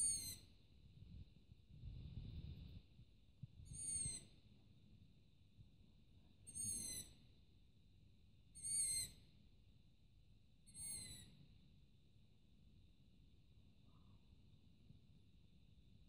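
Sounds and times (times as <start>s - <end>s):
young owl begging calls: 0.0s - 0.4s, 6.5s - 7.1s, 8.6s - 9.2s.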